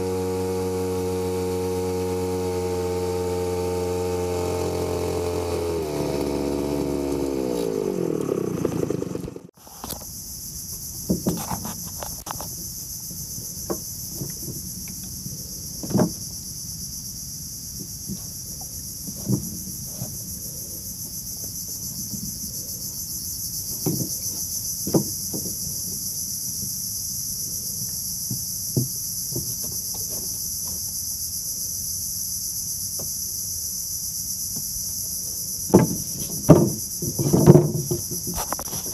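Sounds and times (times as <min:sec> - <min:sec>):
outboard motor running: 0:00.0 - 0:09.6, 0:35.6 - 0:38.9
insect chorus: 0:06.4 - 0:38.9
knocks against wooden boat: 0:15.8 - 0:16.2, 0:19.1 - 0:19.6, 0:23.8 - 0:24.2, 0:24.8 - 0:25.6, 0:35.7 - 0:38.6.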